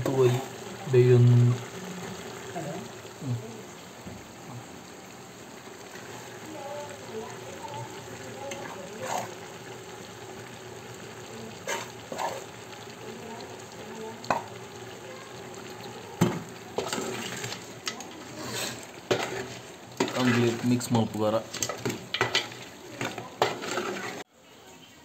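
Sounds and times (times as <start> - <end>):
chicken sizzling in a pan: 0.0 - 25.0
spoon knocking and scraping pan: 14.2 - 14.5, 16.2 - 20.7, 21.5 - 24.2.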